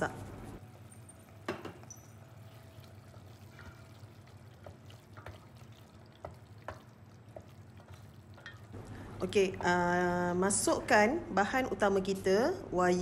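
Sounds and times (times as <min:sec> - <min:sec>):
wet stirring of paste: 0:00.3 - 0:08.8
spatula knocking against pot: 0:06.2 - 0:08.6.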